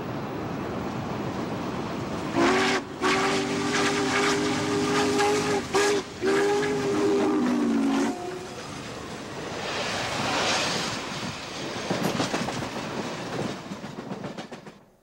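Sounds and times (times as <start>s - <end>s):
train rumbling at speed: 0.0s - 15.0s
steam whistle chord: 2.3s - 8.5s.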